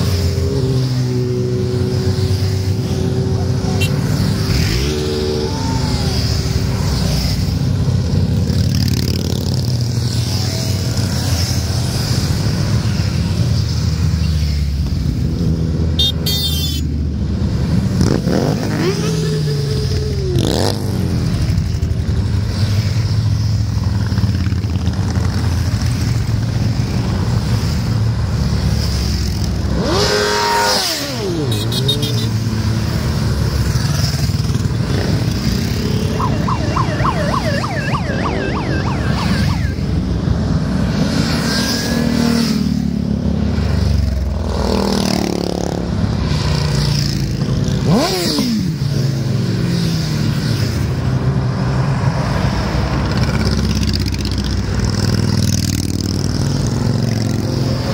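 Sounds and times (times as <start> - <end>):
motorcycles riding past: 0.0 - 16.0, 17.0 - 57.9.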